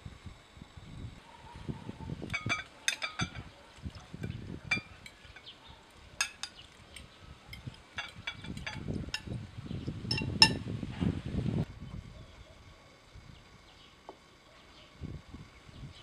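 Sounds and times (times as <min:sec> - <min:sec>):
glass clinking on glass: 0:02.3 - 0:03.5, 0:04.2 - 0:05.5, 0:06.2 - 0:06.6, 0:07.5 - 0:09.4, 0:10.1 - 0:10.6.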